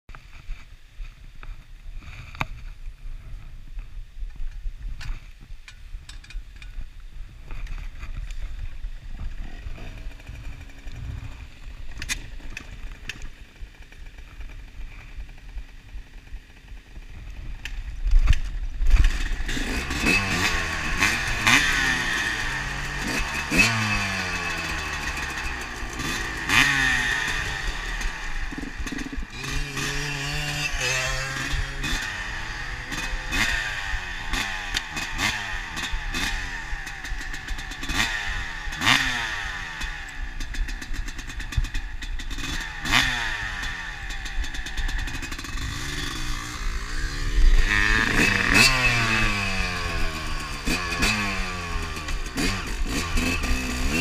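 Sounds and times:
motocross engine revving: 0:09.2 - 0:14.2, 0:18.9 - 0:54.0.

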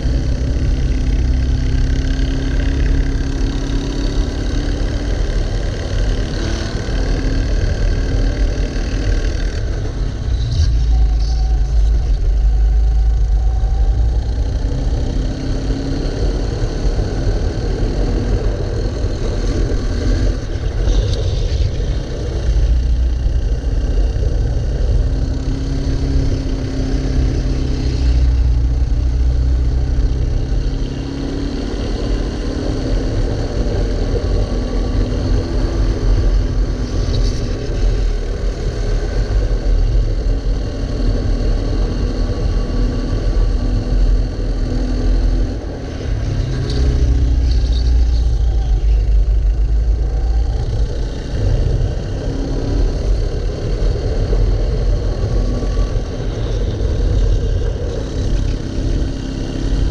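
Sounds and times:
go-kart engine running hard: 0:00.0 - 0:59.9.

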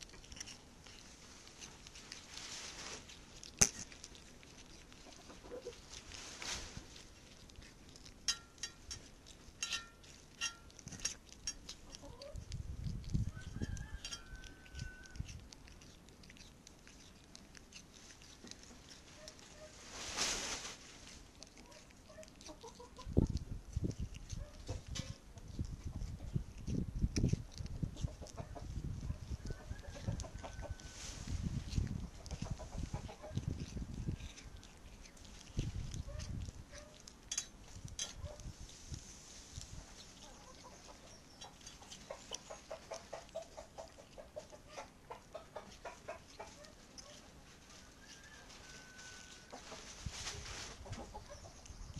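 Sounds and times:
hissy rustle: 0:00.0 - 0:08.0, 0:17.0 - 0:22.0, 0:30.6 - 0:36.7, 0:37.7 - 0:41.1, 0:46.4 - 0:51.2
cat chewing bone: 0:00.0 - 0:19.9, 0:20.8 - 0:50.0, 0:50.8 - 0:51.9
kitten eating from metal pan: 0:00.0 - 0:50.1, 0:50.8 - 0:51.9.

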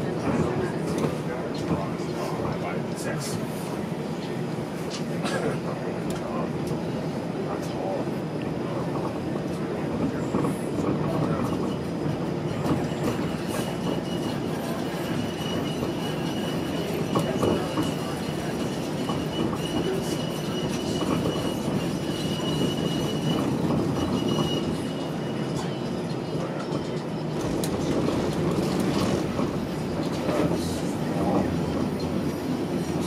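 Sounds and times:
streetcar rumbling on rails: 0:00.0 - 0:33.0
high wheel squeal: 0:11.3 - 0:27.6.

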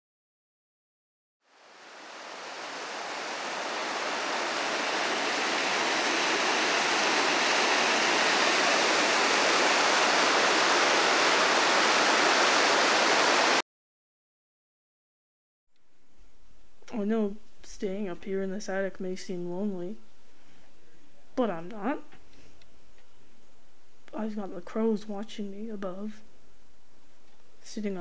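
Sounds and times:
steady rushing hiss: 0:01.5 - 0:13.6.

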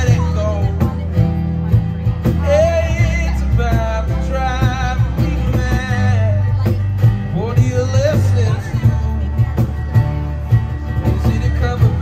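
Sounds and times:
electric bass: 0:00.0 - 0:12.0
man singing: 0:00.0 - 0:12.0
strummed acoustic guitars: 0:00.0 - 0:12.0.

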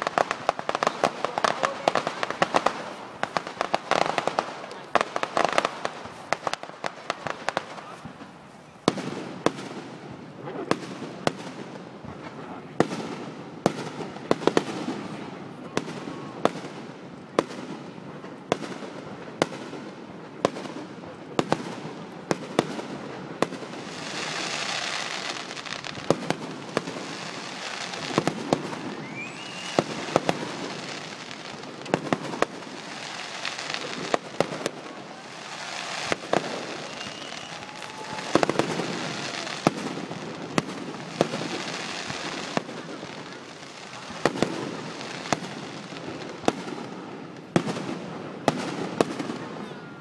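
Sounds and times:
fireworks bangs: 0:00.0 - 0:50.0
fireworks crackling: 0:00.0 - 0:50.0
rising firework whistle: 0:23.9 - 0:42.6, 0:49.0 - 0:50.0.

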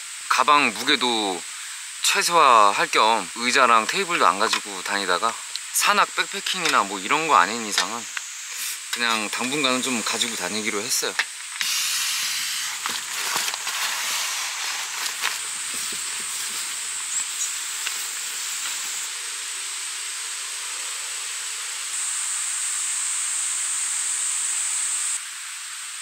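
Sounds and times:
steady high-pitched hiss: 0:00.0 - 0:26.0
nylon sleeping pad rustling: 0:11.6 - 0:19.1.

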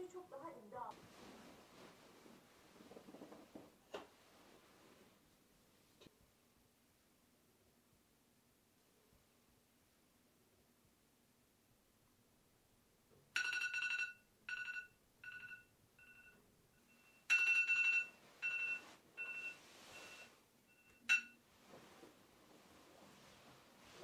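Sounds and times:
mobile phone ringing: 0:13.4 - 0:21.4.

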